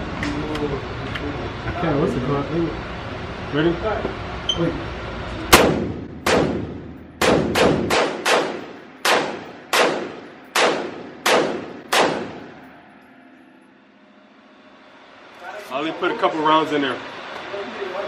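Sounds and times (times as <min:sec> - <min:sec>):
gunshots echoing indoors: 0:05.5 - 0:12.6.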